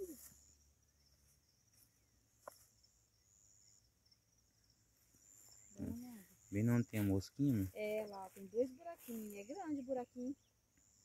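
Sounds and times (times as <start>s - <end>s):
faint insect chirping: 0.0s - 11.0s.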